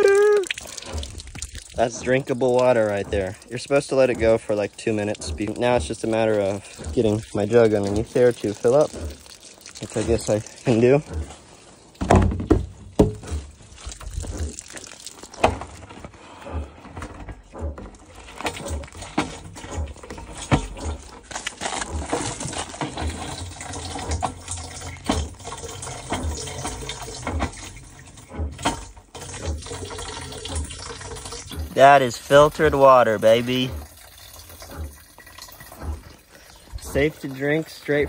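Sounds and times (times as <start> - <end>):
jug thumps and knocks: 0.0 - 38.0
water filling plastic jug: 0.0 - 38.0.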